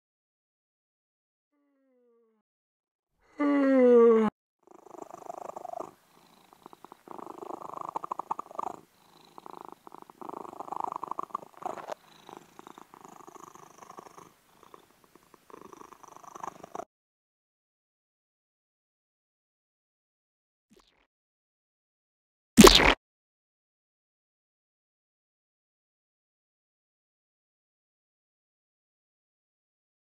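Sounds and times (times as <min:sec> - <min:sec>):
cat-like purring: 0:04.6 - 0:16.9.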